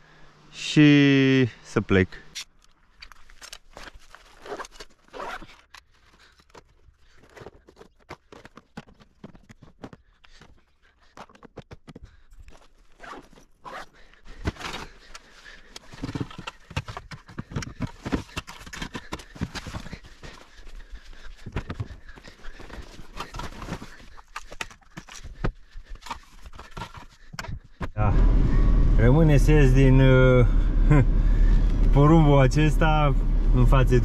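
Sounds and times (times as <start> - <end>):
plastic tackle box clicks and scrapes: 22.8 - 27.6.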